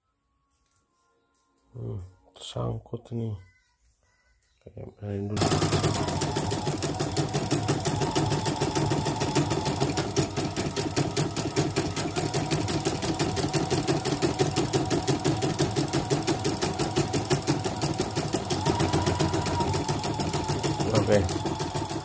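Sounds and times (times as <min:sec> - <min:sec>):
embroidery machine needle stitching: 0:05.4 - 0:22.0
motor hum: 0:05.4 - 0:22.0.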